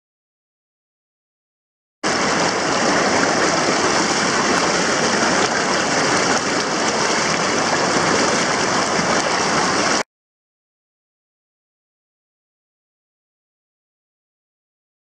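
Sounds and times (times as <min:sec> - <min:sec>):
river water rushing: 0:02.0 - 0:10.0.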